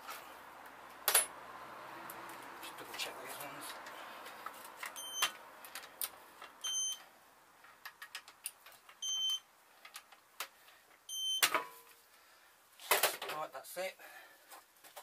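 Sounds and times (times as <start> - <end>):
torque wrench beeps: 5.0 - 5.3, 6.6 - 7.0, 9.0 - 9.4, 11.1 - 11.5.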